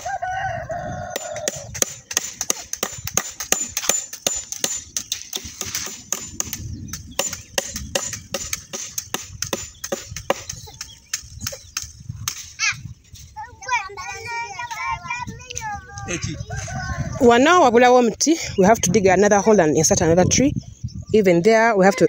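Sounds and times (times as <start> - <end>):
rooster crowing: 0.0 - 1.7, 16.4 - 17.4
nails driven into wooden poles: 1.2 - 12.5.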